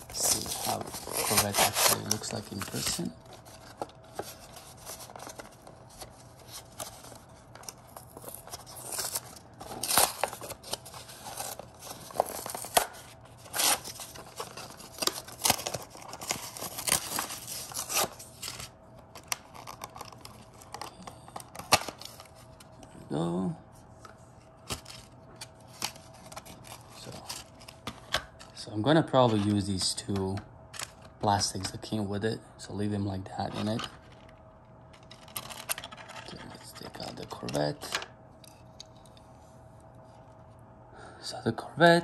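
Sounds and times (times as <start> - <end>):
plastic packaging crackling and tearing: 0.0 - 22.6, 24.6 - 28.4.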